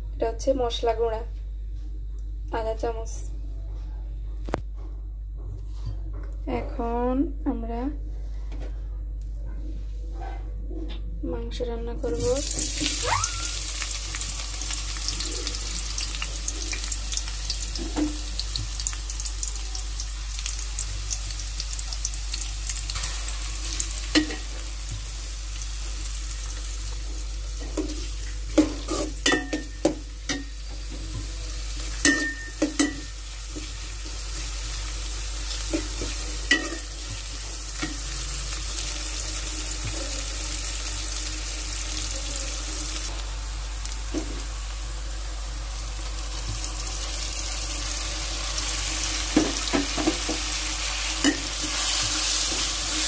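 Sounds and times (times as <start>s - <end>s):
onions sizzling in hot oil: 12.2s - 53.0s
steel spoon clanking against pot: 32.0s - 33.1s, 36.5s - 36.9s.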